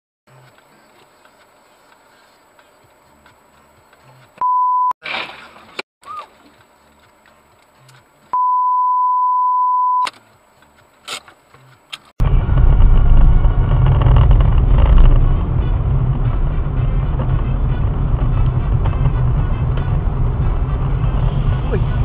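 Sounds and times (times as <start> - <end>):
car engine and road noise: 0.3 - 22.0
single-pitched beep: 4.4 - 5.0, 8.4 - 10.1.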